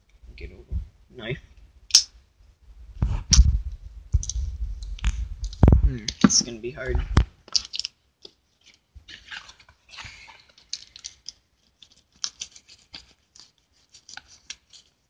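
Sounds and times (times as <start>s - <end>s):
plastic crinkling: 7.4s - 15.0s.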